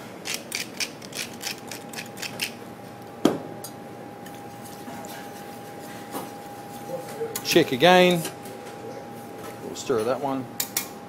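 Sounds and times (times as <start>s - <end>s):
pepper mill grinding: 0.2s - 2.6s.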